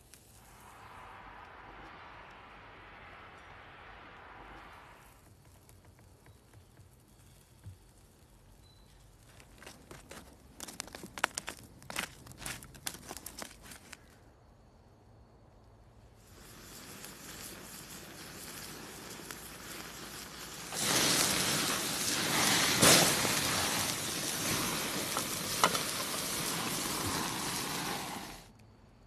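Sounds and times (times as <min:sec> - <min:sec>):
fat popping and crackling: 0:09.2 - 0:14.2, 0:16.4 - 0:28.4
meat sizzling on a grill: 0:16.2 - 0:28.5.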